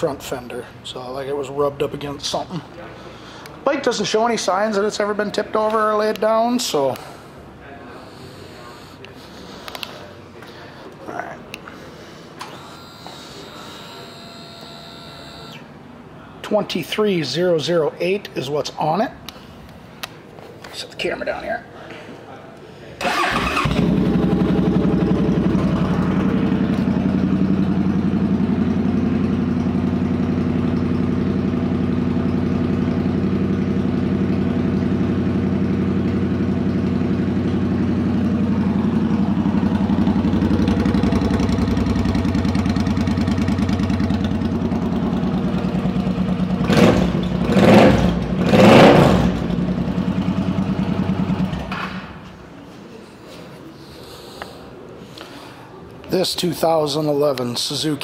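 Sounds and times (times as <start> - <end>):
motorcycle engine starting and idling: 23.0 - 52.5
motorcycle engine revving: 23.1 - 52.0.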